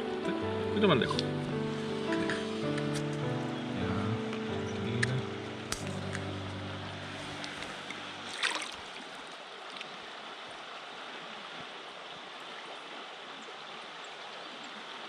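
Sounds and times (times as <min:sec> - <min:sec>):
background music: 0:00.0 - 0:08.4
river water rushing: 0:00.0 - 0:15.0.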